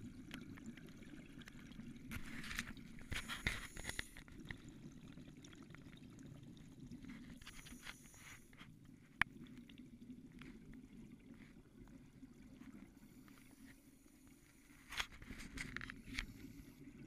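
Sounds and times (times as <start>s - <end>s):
underwater bubbles gurgling: 0.0s - 17.0s.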